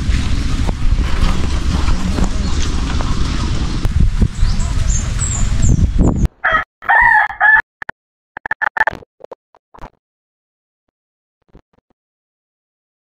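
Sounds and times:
rooster crowing: 0:06.4 - 0:07.6.

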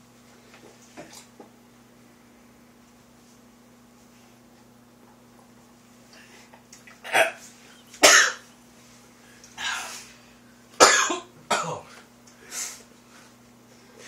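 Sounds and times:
man coughing hard: 0:08.0 - 0:08.5, 0:10.8 - 0:11.9.

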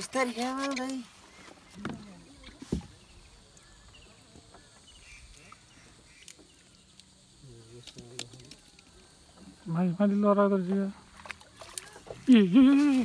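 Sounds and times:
faint chirps: 0:00.6 - 0:09.7.

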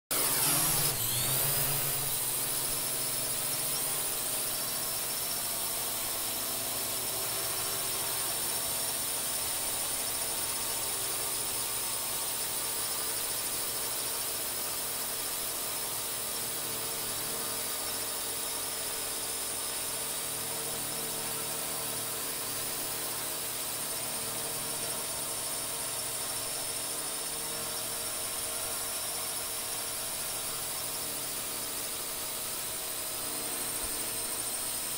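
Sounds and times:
drone propellers whining: 0:00.1 - 0:10.6.

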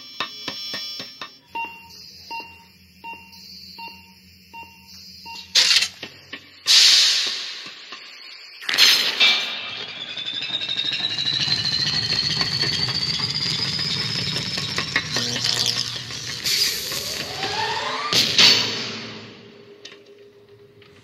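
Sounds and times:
rising electronic whine: 0:01.9 - 0:21.0
sharp hits: 0:06.7 - 0:19.8.

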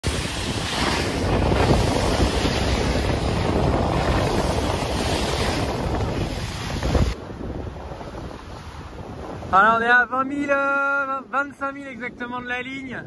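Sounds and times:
wind buffeting microphone: 0:00.0 - 0:10.8
water rushing along hull: 0:00.0 - 0:12.9.

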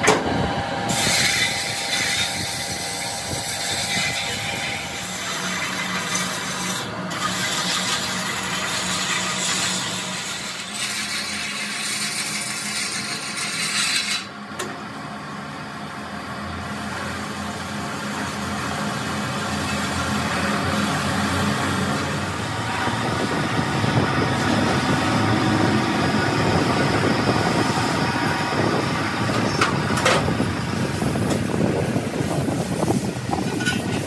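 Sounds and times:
lathe motor hum: 0:00.0 - 0:33.5
wire brush rasping on metal: 0:00.9 - 0:14.3.

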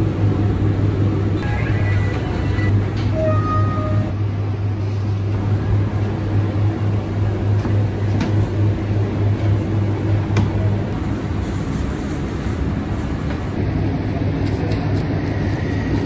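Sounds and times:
low hum of kitchen machinery: 0:00.0 - 0:16.0.

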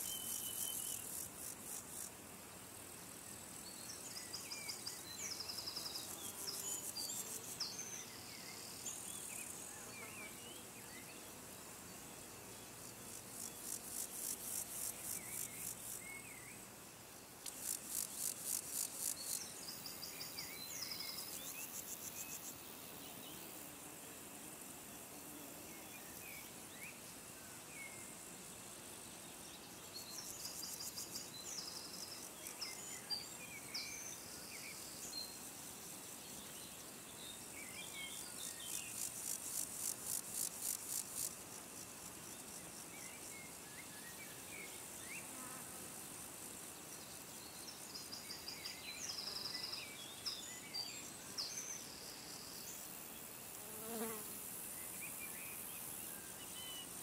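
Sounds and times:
insects calling in pulses: 0:00.0 - 0:02.1, 0:17.4 - 0:22.7, 0:29.9 - 0:36.5, 0:37.4 - 0:57.0.

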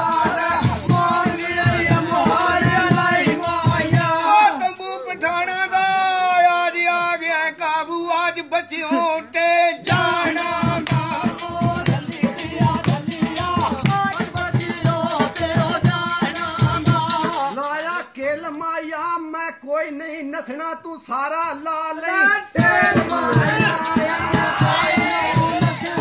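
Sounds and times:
fast percussion beat: 0:00.0 - 0:04.8, 0:09.8 - 0:18.1, 0:22.6 - 0:26.0
person singing: 0:00.0 - 0:05.1, 0:22.1 - 0:26.0.

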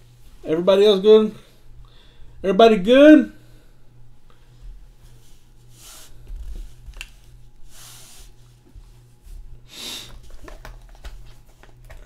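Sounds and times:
low electrical hum: 0:00.0 - 0:12.0
soft breathy hisses: 0:05.7 - 0:06.2.

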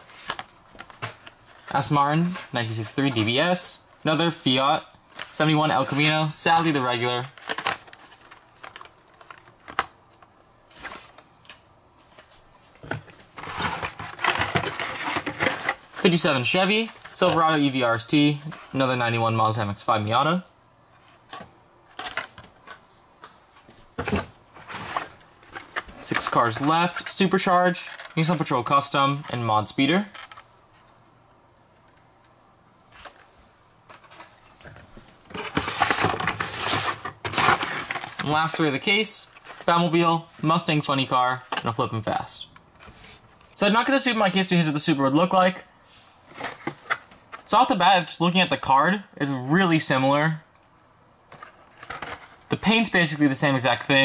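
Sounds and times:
plastic packages rustling and scraping: 0:00.0 - 0:03.4, 0:05.1 - 0:11.3, 0:12.0 - 0:17.5, 0:21.0 - 0:28.5, 0:32.9 - 0:40.6, 0:45.9 - 0:47.6, 0:51.3 - 0:54.0.

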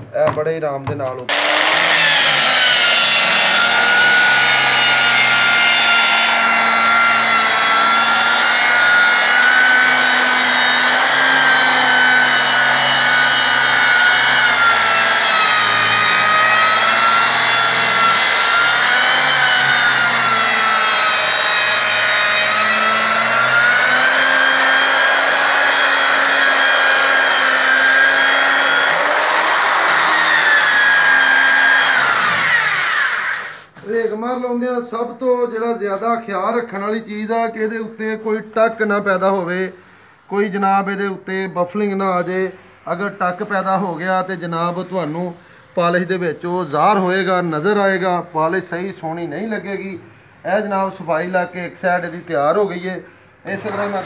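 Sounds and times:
angle grinder sanding wood: 0:01.3 - 0:34.1, 0:43.5 - 0:48.7, 0:53.5 - 0:54.0.

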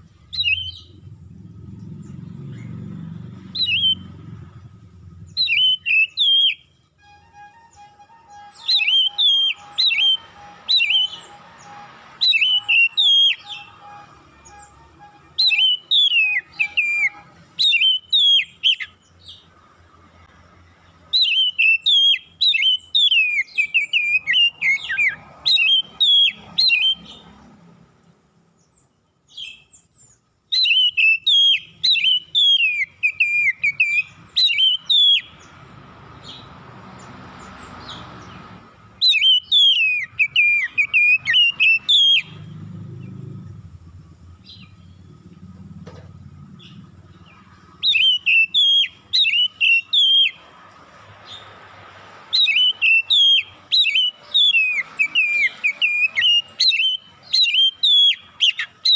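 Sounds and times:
bird singing whistled phrases: 0:00.3 - 0:01.0, 0:03.5 - 0:04.2, 0:05.3 - 0:19.0, 0:21.1 - 0:27.2, 0:30.5 - 0:35.5, 0:39.0 - 0:42.5, 0:47.8 - 0:50.4, 0:52.3 - 0:58.9.

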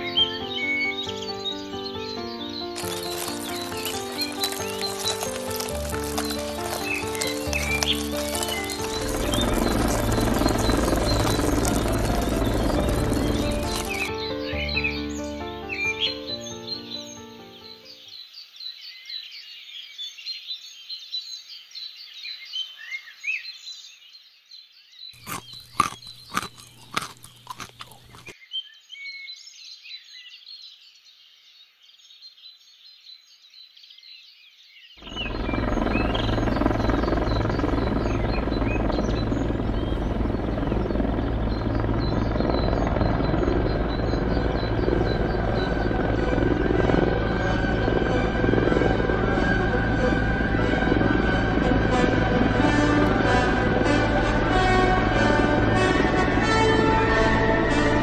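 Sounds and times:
birdsong: 0:00.0 - 0:58.0
ladybird wings buzzing: 0:02.8 - 0:14.8, 0:35.0 - 0:58.0
low hum: 0:02.8 - 0:15.7, 0:35.0 - 0:58.0.

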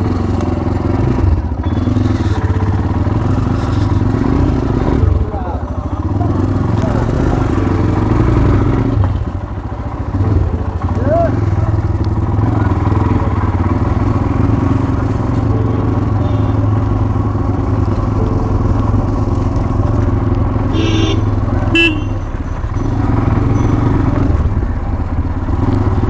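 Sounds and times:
motorcycle engine running: 0:00.0 - 0:26.0
short horn beeps: 0:01.6 - 0:02.7, 0:15.6 - 0:17.2, 0:20.7 - 0:23.8.

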